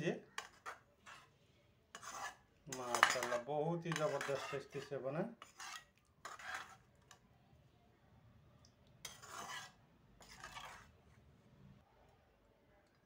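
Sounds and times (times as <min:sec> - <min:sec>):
metal spoon scraping pot: 0:00.4 - 0:01.3, 0:01.9 - 0:07.2, 0:09.0 - 0:11.0.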